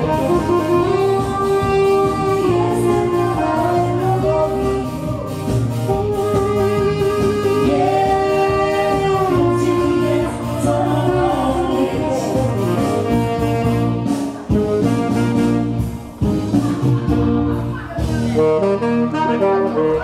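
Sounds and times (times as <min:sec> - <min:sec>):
woman singing: 0:00.0 - 0:14.0
keyboard: 0:00.0 - 0:20.0
saxophone: 0:00.0 - 0:20.0.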